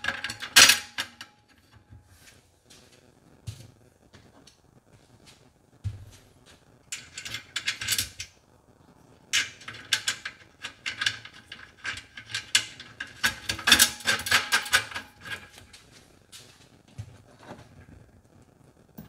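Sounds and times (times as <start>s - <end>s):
small metal clicks and rattles: 0.0s - 1.8s, 6.9s - 8.4s, 9.3s - 15.9s.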